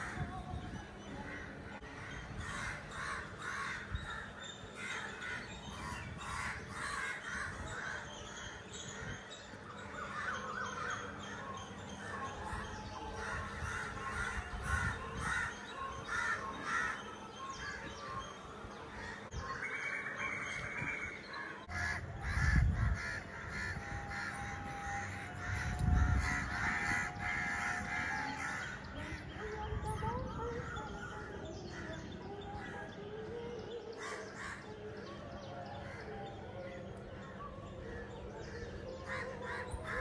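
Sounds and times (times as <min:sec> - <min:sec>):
crows cawing: 0:01.8 - 0:08.5, 0:13.0 - 0:17.1, 0:21.7 - 0:28.9, 0:38.5 - 0:40.0.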